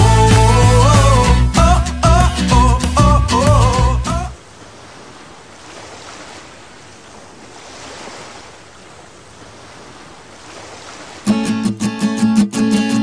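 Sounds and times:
strummed guitar music: 0.0 - 4.4, 11.2 - 13.0
water rushing along a hull: 0.0 - 11.9.

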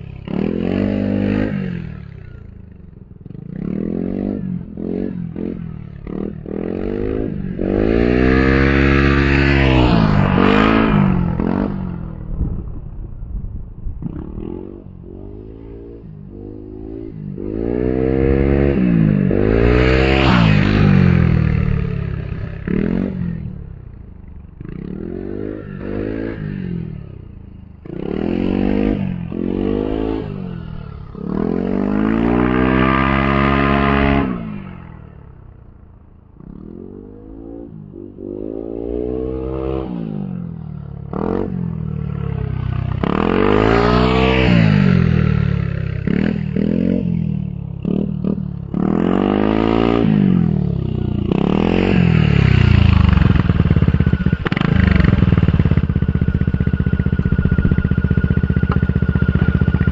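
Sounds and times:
scooter engine passing by: 40.3 - 59.9.

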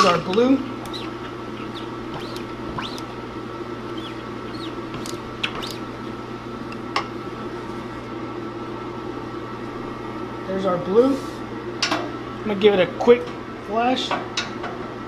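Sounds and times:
steady machine hum: 0.0 - 14.0
squeegee squeaking on screen: 0.6 - 3.2, 3.9 - 6.1
sharp clicks: 0.8 - 3.1, 3.9 - 5.9.

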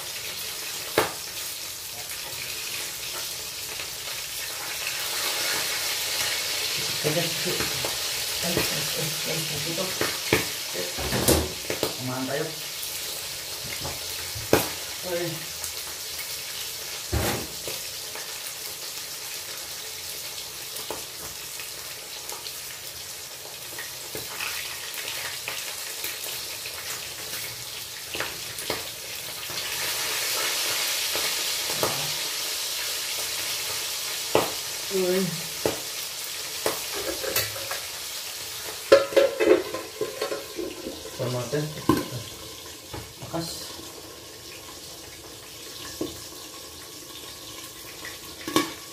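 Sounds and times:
fish sizzling in oil: 0.0 - 48.9
metal lid clattering: 38.9 - 41.1.

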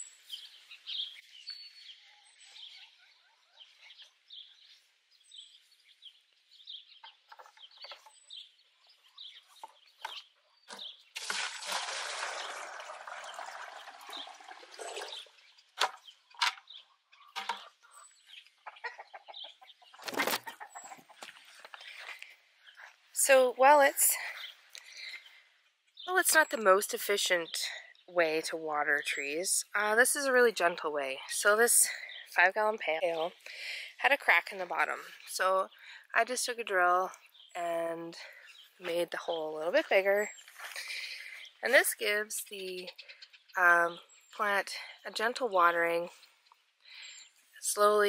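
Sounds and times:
birds chirping: 0.0 - 48.0
buckets knocking: 11.2 - 15.3
water pouring into plastic pail: 11.2 - 15.4.

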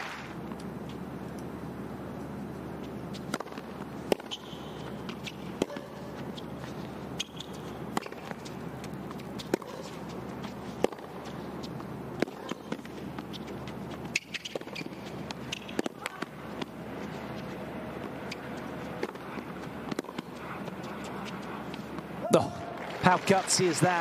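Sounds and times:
steady background hum: 0.0 - 24.0
tennis racquets hitting ball: 2.9 - 22.1.

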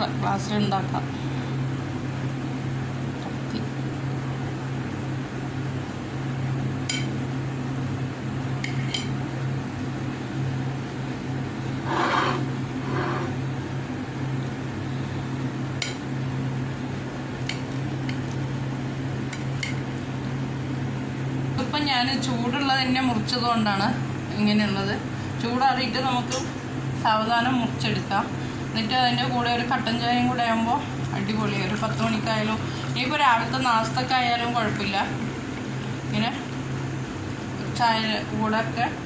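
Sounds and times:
steady low hum: 0.0 - 39.0
knife scraping plate: 11.8 - 13.4.

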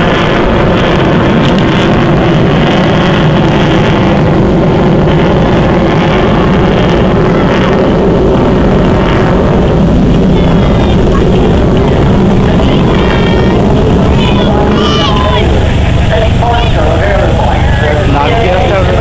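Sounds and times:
aircraft engine overhead: 0.0 - 19.0.

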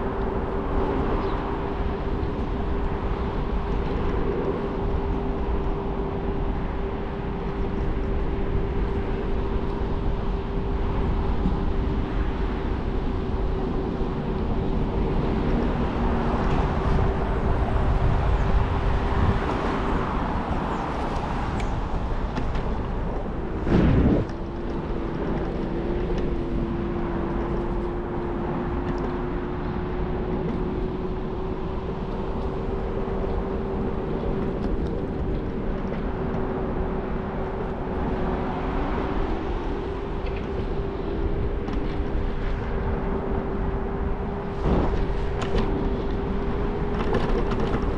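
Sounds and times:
scooter motor hum: 0.0 - 47.9
wheels rolling: 0.0 - 47.9
wind: 0.0 - 47.9
loud thump: 23.6 - 24.4.

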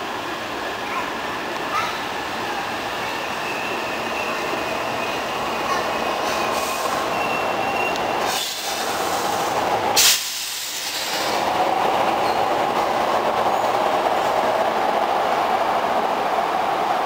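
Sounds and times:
electric train arriving: 0.0 - 17.0
train standing hum: 0.0 - 17.0
air brake hiss: 6.3 - 7.1, 8.2 - 11.4.

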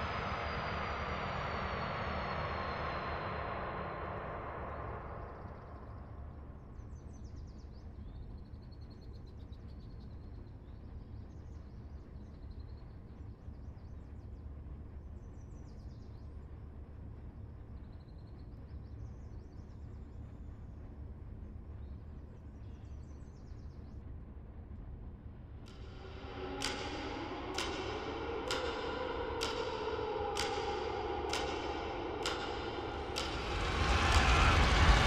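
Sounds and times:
steady low rumble: 0.0 - 35.0.

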